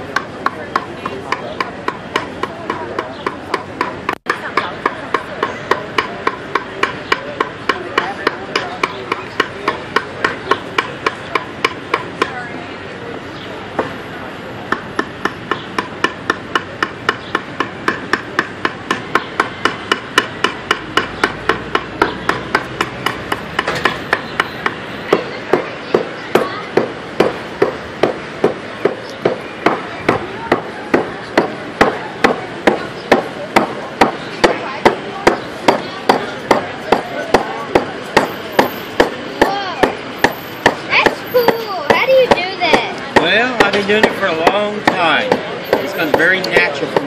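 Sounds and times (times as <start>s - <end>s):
adze chopping into wood: 14.7s - 41.2s, 41.9s - 47.0s.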